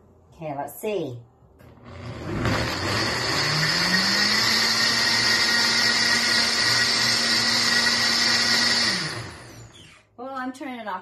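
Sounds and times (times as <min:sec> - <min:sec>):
blender running: 0:01.6 - 0:10.0.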